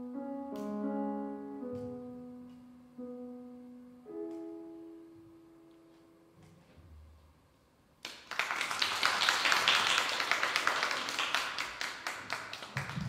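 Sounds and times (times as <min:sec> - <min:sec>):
piano chord: 0:00.0 - 0:07.2
audience applause: 0:08.0 - 0:13.0.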